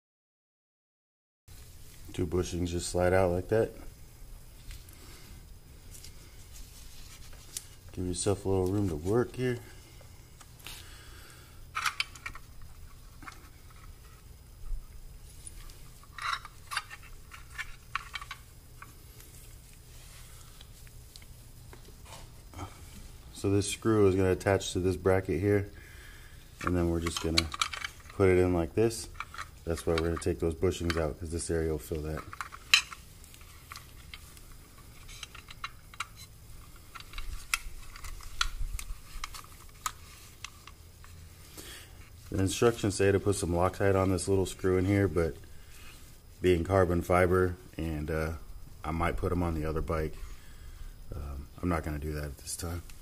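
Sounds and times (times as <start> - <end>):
gloved hands rustling: 1.5 - 47.1
small parts clicking: 11.7 - 14.2, 15.3 - 19.8, 26.6 - 28.3, 28.9 - 41.7.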